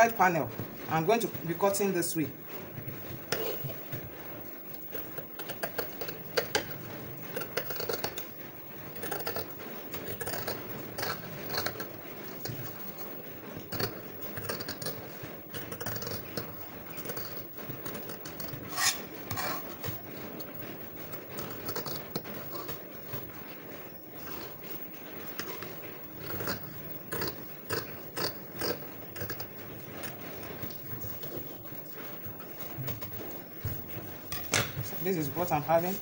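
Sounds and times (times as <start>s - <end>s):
scissors cutting fabric: 7.4s - 8.3s, 9.0s - 12.7s, 15.6s - 20.0s.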